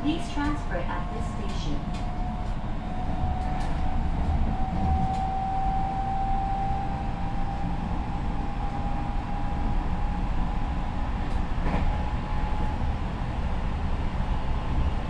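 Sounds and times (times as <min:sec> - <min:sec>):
wheels rumbling on rail: 0:00.0 - 0:15.0.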